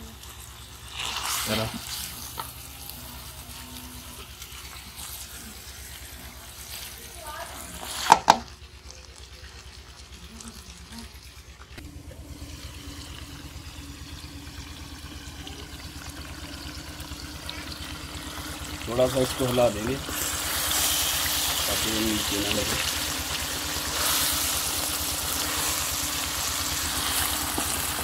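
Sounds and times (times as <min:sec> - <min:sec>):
chicken sizzling in a pot: 0:00.0 - 0:28.0
steady low hum: 0:08.4 - 0:28.0.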